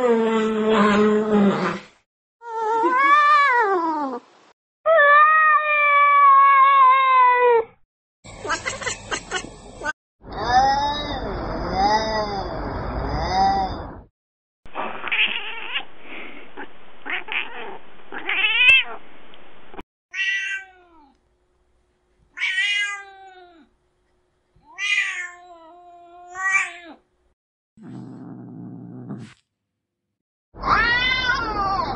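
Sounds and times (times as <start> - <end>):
cat meowing: 20.1 - 21.1, 22.4 - 23.7, 24.6 - 27.0, 30.6 - 31.9.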